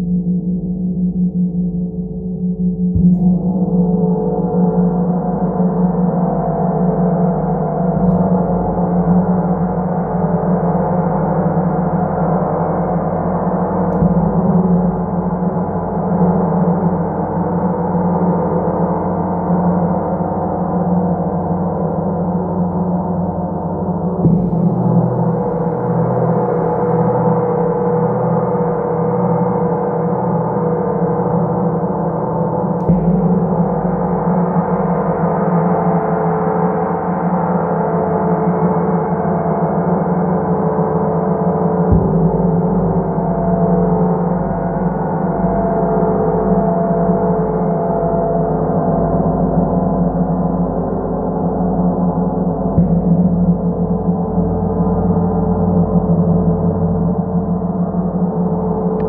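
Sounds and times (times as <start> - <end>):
mallet striking gong: 2.9 - 4.4, 13.8 - 15.8, 24.1 - 27.2, 32.7 - 35.6, 41.8 - 44.2, 52.7 - 55.0
large gong ringing: 24.3 - 27.8, 32.6 - 36.2, 41.6 - 47.8.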